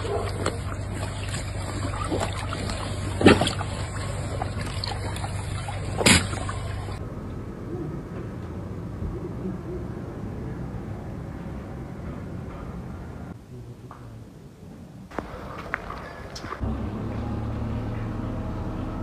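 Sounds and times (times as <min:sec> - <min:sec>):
sheep drinking from a trough: 0:00.0 - 0:07.0
water sloshing and splashing: 0:00.0 - 0:07.0.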